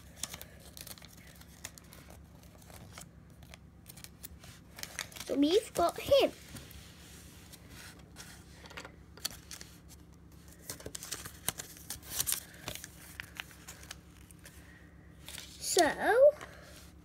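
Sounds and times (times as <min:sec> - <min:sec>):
paper leaflet crinkling: 0:00.0 - 0:06.3, 0:09.2 - 0:14.6
faint low hum: 0:00.0 - 0:17.0.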